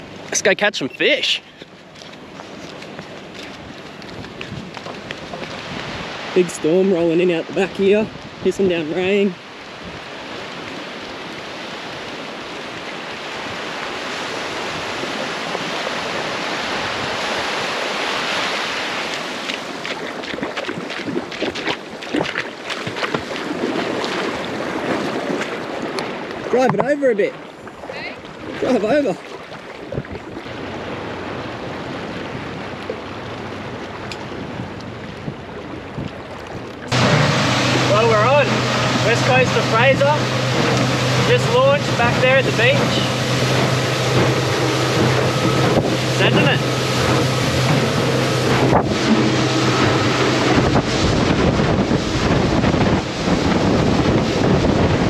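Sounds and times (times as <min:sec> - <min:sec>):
outboard motor running: 0:00.0 - 0:55.0
small waves on beach: 0:00.0 - 0:55.0
wind: 0:00.0 - 0:55.0
splashes of wading: 0:01.4 - 0:55.0
water sloshing: 0:01.4 - 0:55.0.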